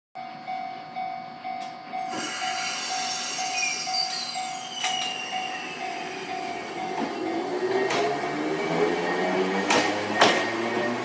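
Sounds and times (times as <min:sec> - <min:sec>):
tram running noise: 0:00.2 - 0:11.0
wheel squeal: 0:02.2 - 0:06.7.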